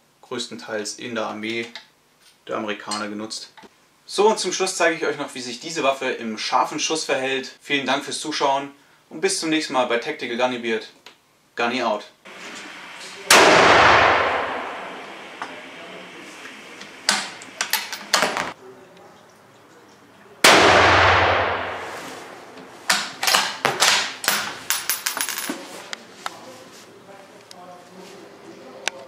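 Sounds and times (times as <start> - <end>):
rifle shots: 12.3 - 16.3, 20.5 - 22.4.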